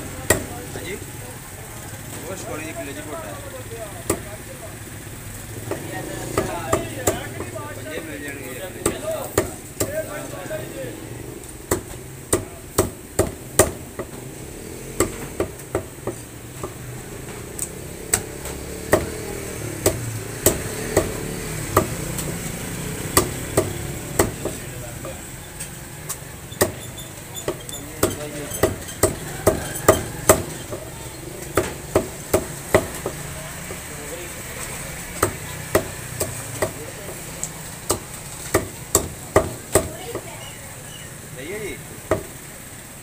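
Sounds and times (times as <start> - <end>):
cleaver chopping on wooden block: 11.7 - 14.2, 15.0 - 16.8, 18.1 - 22.3, 23.1 - 24.6, 26.6 - 26.8, 27.5 - 30.9, 31.5 - 33.8, 35.2 - 37.2, 37.9 - 40.3.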